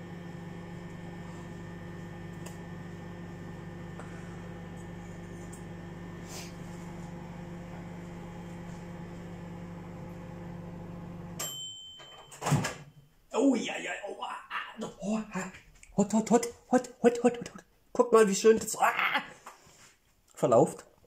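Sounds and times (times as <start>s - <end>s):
microwave oven humming: 0.0s - 12.9s.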